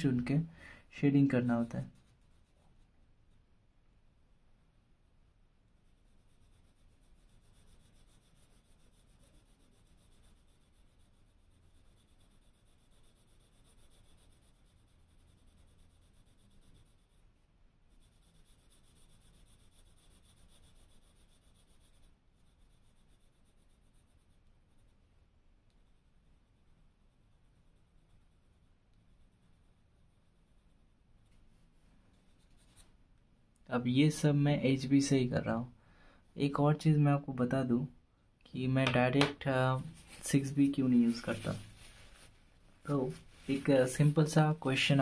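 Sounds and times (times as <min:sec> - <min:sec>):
pencil scratching on paper: 0:01.2 - 0:03.4, 0:05.7 - 0:31.4, 0:32.2 - 0:32.9, 0:39.8 - 0:45.0.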